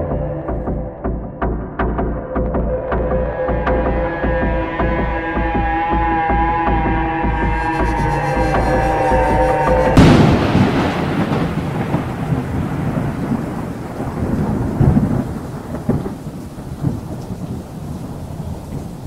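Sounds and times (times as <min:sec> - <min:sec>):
rolling thunder: 0:09.5 - 0:19.0
rain: 0:10.0 - 0:19.0.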